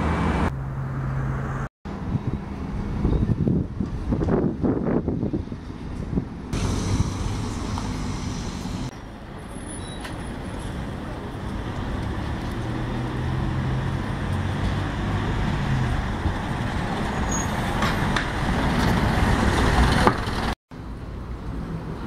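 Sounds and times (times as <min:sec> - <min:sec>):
bus passing close by: 0:00.0 - 0:20.6
street traffic: 0:00.0 - 0:22.0
diesel bus pulling away: 0:06.5 - 0:20.6.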